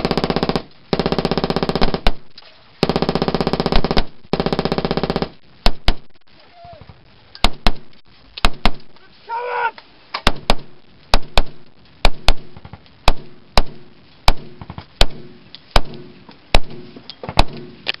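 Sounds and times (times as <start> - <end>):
rifle shots: 0.0 - 6.1, 7.4 - 8.8, 10.2 - 17.8
person shouting: 9.0 - 9.8.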